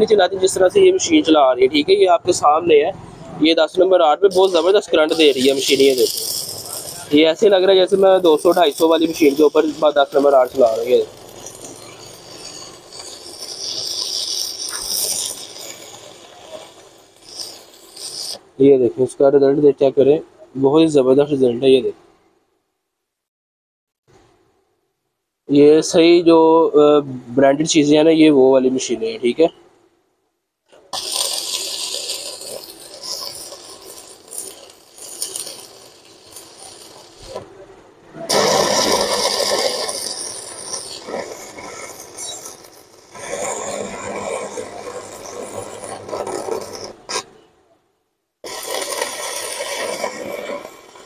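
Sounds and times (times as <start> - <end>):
welding arc crackling and hissing: 0.0 - 2.7, 3.4 - 18.8, 30.7 - 37.7, 38.3 - 47.4, 48.4 - 51.0.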